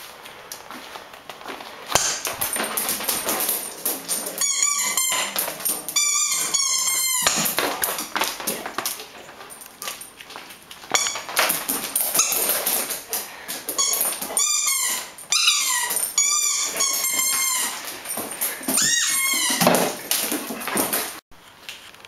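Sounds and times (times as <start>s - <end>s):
ball and paws knocking on tile: 1.9s - 10.3s, 10.9s - 21.2s
dog toy squeaking: 2.0s - 8.6s, 10.9s - 13.0s, 13.7s - 20.2s.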